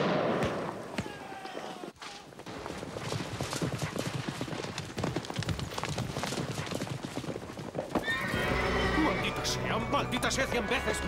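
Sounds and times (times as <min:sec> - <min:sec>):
horses galloping: 0:01.0 - 0:09.6.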